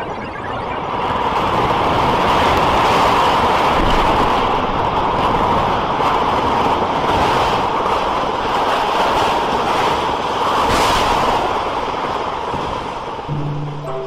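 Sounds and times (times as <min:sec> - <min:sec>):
grainy electronic noise: 0:00.0 - 0:02.0, 0:13.3 - 0:14.0.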